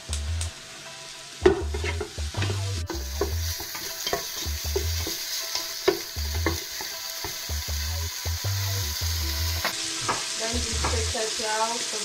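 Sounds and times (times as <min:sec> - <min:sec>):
bacon sizzling: 0:00.0 - 0:12.0.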